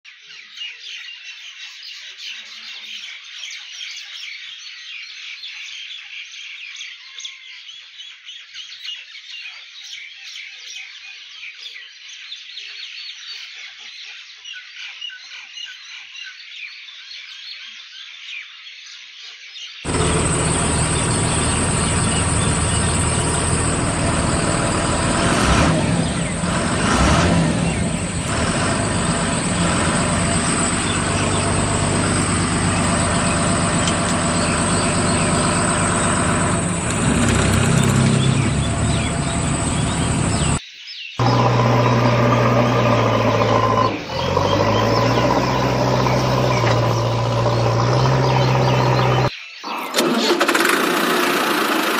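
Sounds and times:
birds chirping: 0:19.7 - 0:51.1
vehicle engine running: 0:19.9 - 0:40.6, 0:41.2 - 0:49.3.

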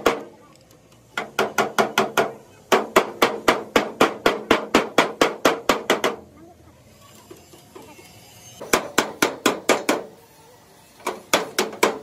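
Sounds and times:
hammer knocking on sheet metal: 0:01.2 - 0:06.2, 0:08.6 - 0:10.1.

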